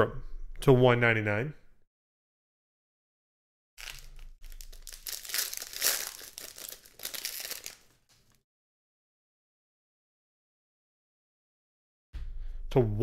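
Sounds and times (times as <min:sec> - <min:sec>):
foil wrapper crinkling and tearing: 0:03.8 - 0:08.4.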